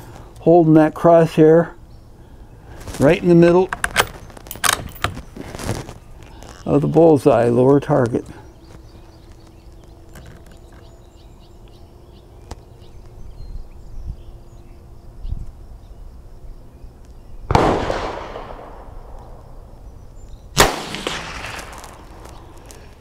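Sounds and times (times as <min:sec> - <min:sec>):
rifle shots with echo: 0:17.5 - 0:19.5, 0:20.6 - 0:22.3.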